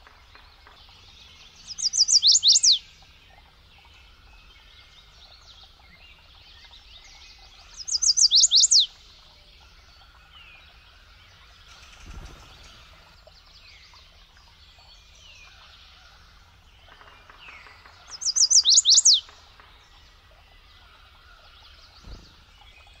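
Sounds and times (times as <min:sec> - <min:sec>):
warbler singing: 0:00.0 - 0:23.0
faint bird calls: 0:05.6 - 0:13.4.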